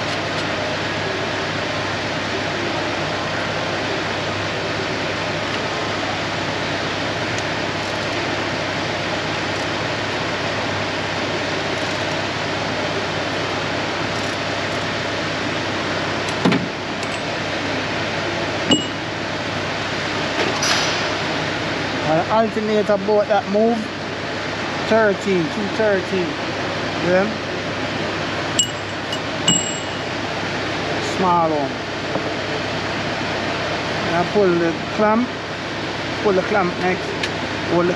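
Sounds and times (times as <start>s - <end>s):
metallic clinks of hand tools: 28.6s - 29.9s.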